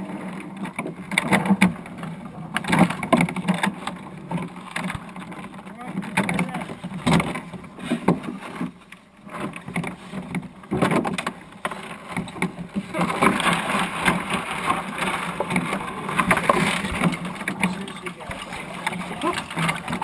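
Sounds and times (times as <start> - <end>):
knocks and rattles of wooden dinghy: 0.0 - 20.0.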